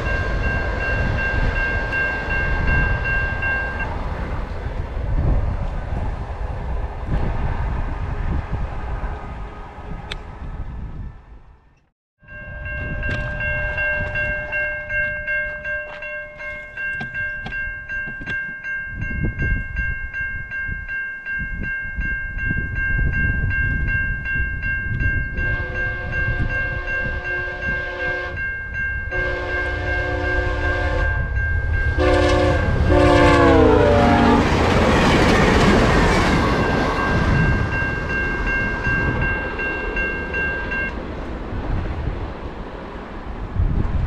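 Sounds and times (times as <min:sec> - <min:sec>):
level-crossing bell ringing: 0:00.0 - 0:03.9, 0:12.2 - 0:32.2, 0:36.4 - 0:41.0
passenger train rushing by: 0:00.0 - 0:11.7, 0:12.3 - 0:44.0
locomotive horn blasts: 0:25.4 - 0:28.5, 0:29.1 - 0:34.5.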